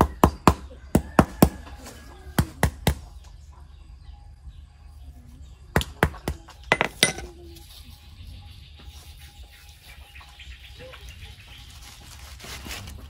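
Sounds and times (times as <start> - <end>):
hard object knocking: 5.8 - 7.3.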